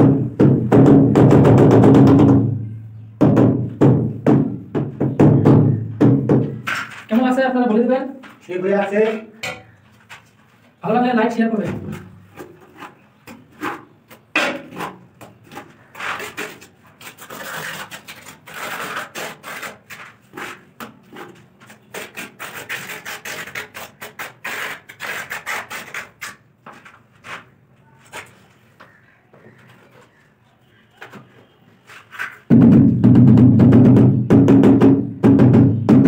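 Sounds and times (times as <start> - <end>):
trowel scraping mortar: 12.3 - 26.5.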